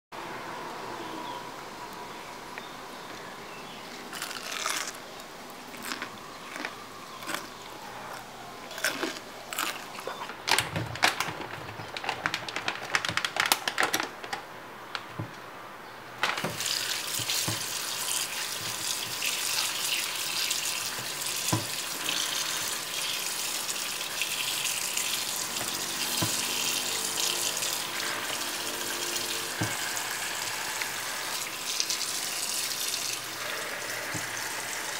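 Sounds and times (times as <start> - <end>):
tap running into a metal sink: 16.4 - 17.9, 25.5 - 30.9.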